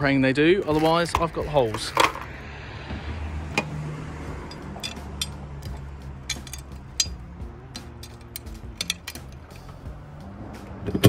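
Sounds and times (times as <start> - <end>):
small metal fasteners clinking: 4.4 - 9.8.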